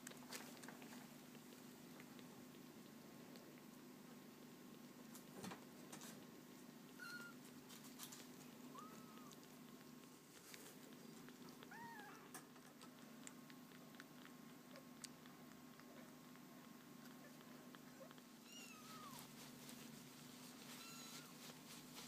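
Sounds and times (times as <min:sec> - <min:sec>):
kitten suckling clicks: 0:09.2 - 0:18.3
tiny kitten mews: 0:11.7 - 0:12.3.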